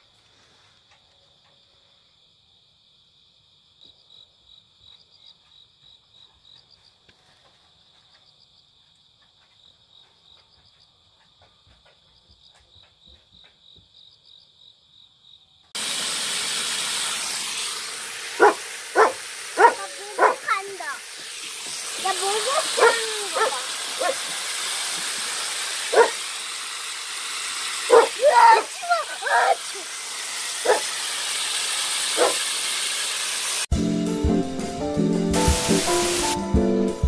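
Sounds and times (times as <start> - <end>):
cricket chirping: 0.6 - 15.8
loud hiss: 15.8 - 33.8, 34.4 - 36.5
dog whining: 18.4 - 20.5, 22.5 - 24.2, 25.9 - 26.2, 27.9 - 29.9, 30.6 - 30.8.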